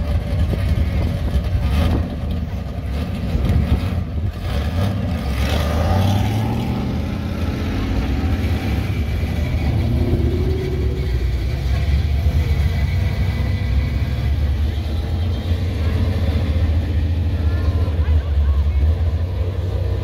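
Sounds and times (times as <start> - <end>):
car engine rumbling: 0.0 - 20.0.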